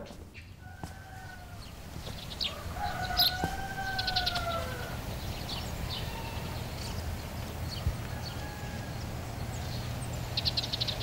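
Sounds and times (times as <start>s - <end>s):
small birds chirping: 0.0s - 11.0s
rooster crowing: 0.6s - 1.8s, 2.4s - 5.1s, 5.8s - 6.6s, 8.0s - 9.5s.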